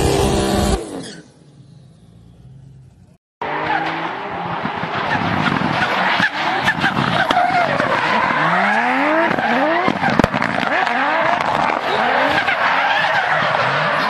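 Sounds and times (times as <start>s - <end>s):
tyres screeching: 0.4s - 1.4s.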